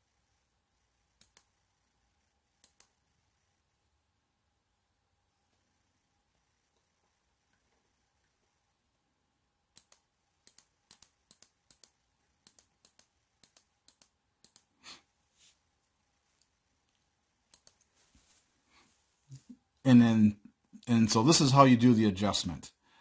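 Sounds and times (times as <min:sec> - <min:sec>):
laptop clicking: 0:01.2 - 0:01.5, 0:02.6 - 0:03.0, 0:09.8 - 0:14.7, 0:17.5 - 0:17.9
soft rustle: 0:15.2 - 0:19.5.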